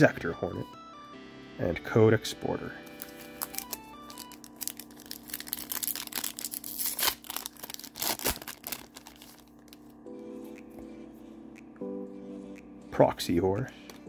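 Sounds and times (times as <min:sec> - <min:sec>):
foil wrapper tearing and crinkling: 0:02.9 - 0:09.9.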